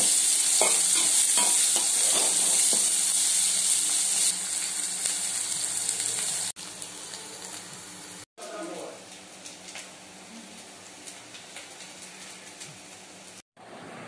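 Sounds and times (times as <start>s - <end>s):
vegetables sizzling in hot oil: 0.0s - 8.3s.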